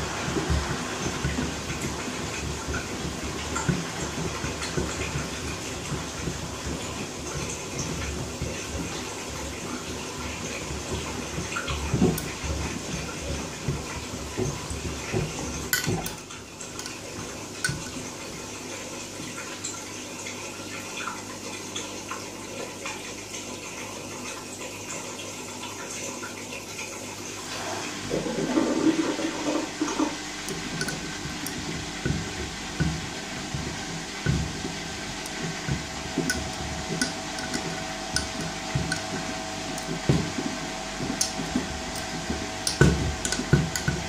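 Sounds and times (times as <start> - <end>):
washing machine drum turning: 0.0 - 26.0, 26.7 - 44.0
water sloshing: 27.5 - 44.0
sandals knocking against drum: 29.8 - 44.0.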